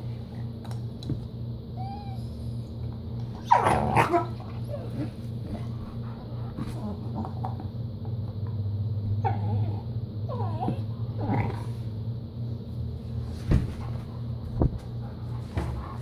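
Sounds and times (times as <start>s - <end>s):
dog whining: 1.7s - 2.8s, 3.4s - 5.2s, 9.1s - 11.8s
dogs growling: 1.8s - 12.0s
thump: 13.4s - 13.9s.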